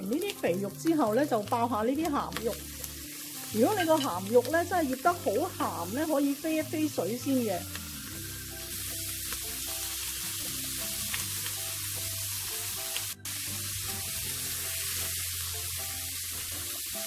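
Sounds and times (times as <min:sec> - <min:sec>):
pork sizzling in hot oil: 0:00.0 - 0:17.0
soft background music: 0:00.0 - 0:17.0.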